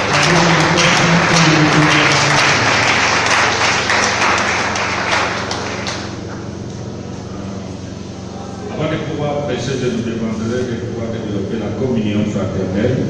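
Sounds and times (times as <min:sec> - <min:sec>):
crowd applauding: 0:00.0 - 0:06.6.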